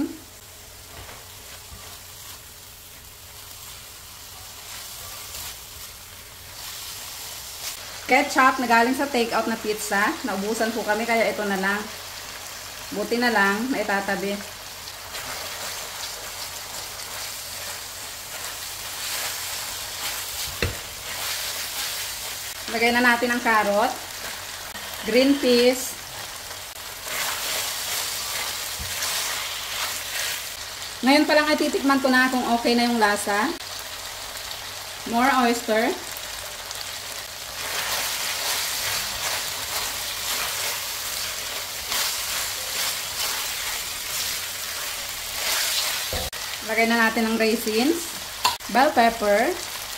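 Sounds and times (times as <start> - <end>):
meat sizzling in a pan: 0.0 - 49.9
spatula scraping a pan: 15.1 - 22.6, 24.2 - 30.5, 37.6 - 46.4.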